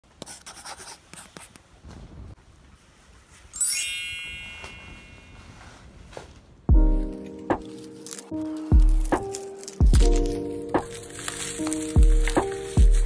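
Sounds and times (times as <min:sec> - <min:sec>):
bright high chime: 0:03.5 - 0:05.8
plastic mailers rustling: 0:07.2 - 0:13.0.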